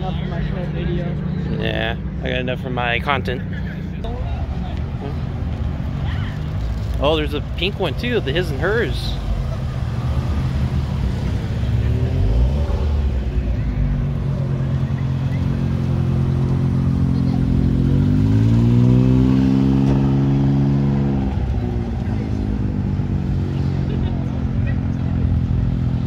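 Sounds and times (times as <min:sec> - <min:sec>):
small car engines running: 0:00.0 - 0:26.0
engine revving: 0:06.4 - 0:26.0.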